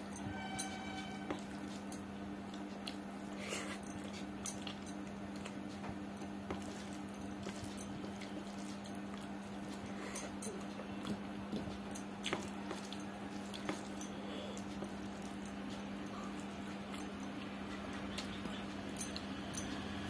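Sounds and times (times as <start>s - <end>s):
steady low hum: 0.0s - 20.0s
person chewing: 6.4s - 20.0s.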